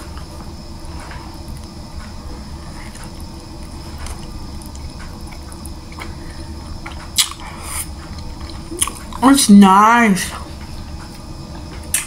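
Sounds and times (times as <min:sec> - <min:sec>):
person chewing food: 0:00.1 - 0:09.2.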